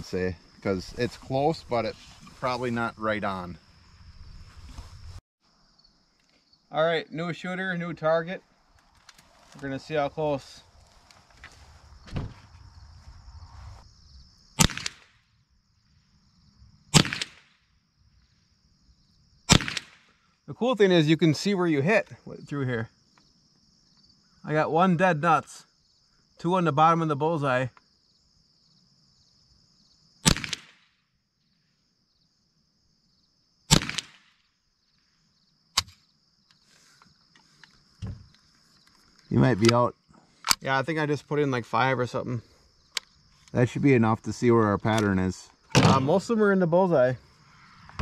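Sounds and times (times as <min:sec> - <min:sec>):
crickets chirring: 0:00.0 - 0:48.0
rifle shots: 0:14.6 - 0:15.1, 0:16.9 - 0:17.6, 0:19.5 - 0:20.1, 0:30.2 - 0:30.8, 0:33.7 - 0:34.3.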